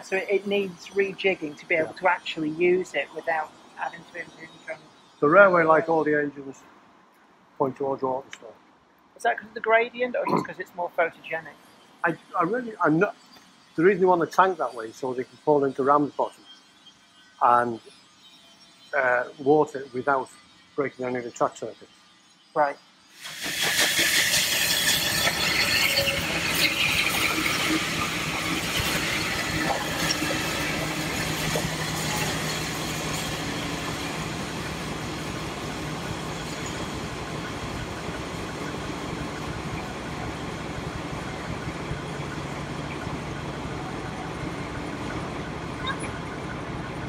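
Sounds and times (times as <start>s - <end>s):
train wheels squealing on rails: 0.0s - 6.4s, 10.8s - 47.0s
railway coaches rumbling: 22.6s - 47.0s
engine hum: 25.2s - 47.0s.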